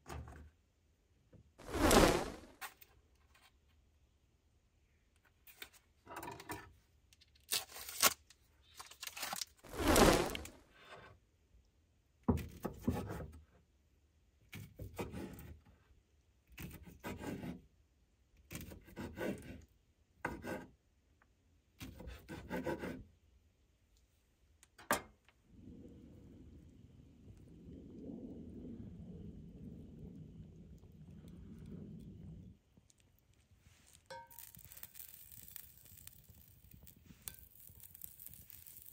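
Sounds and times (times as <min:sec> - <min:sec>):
plastic packaging rustling and tearing: 0:07.4 - 0:08.2, 0:08.8 - 0:10.6, 0:33.8 - 0:38.9.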